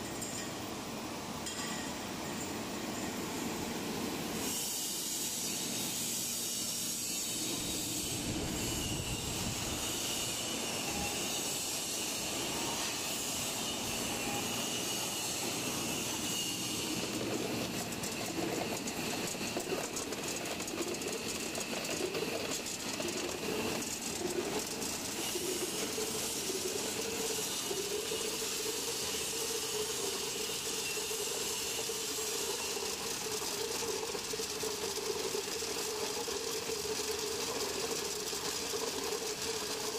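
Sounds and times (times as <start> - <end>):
compressor and fans humming: 7.3 - 31.8
machine rattling and clattering: 17.0 - 28.4, 32.1 - 39.9.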